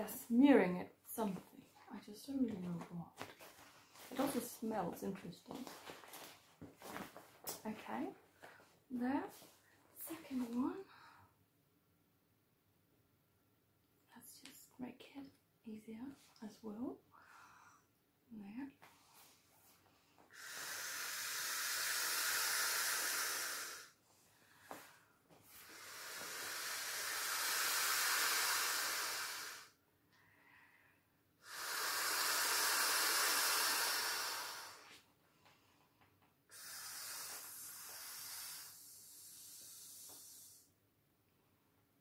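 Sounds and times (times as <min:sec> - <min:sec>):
person blowing into inflatable valve: 0:20.3 - 0:24.0, 0:25.5 - 0:29.8, 0:31.4 - 0:35.0, 0:36.5 - 0:40.8.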